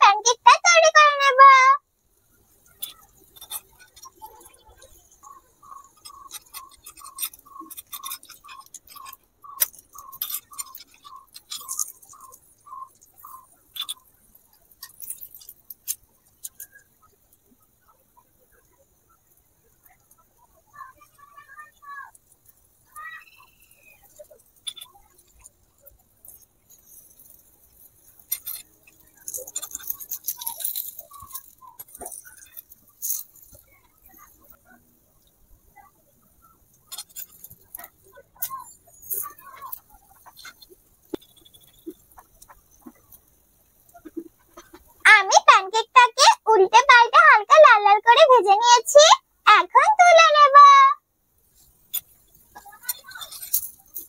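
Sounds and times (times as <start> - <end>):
pancake frying: 1.9 - 45.0, 51.3 - 54.0
spatula scraping frying pan: 2.7 - 14.0.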